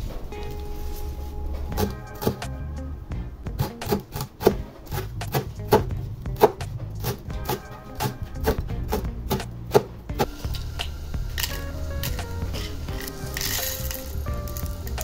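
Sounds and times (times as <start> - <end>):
background music: 0.0 - 15.0
knife chopping on wooden board: 3.6 - 10.3.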